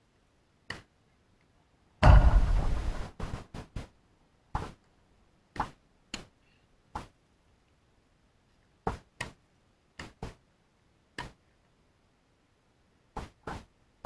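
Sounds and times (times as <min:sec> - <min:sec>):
tennis ball struck by rackets: 0:02.0 - 0:03.0.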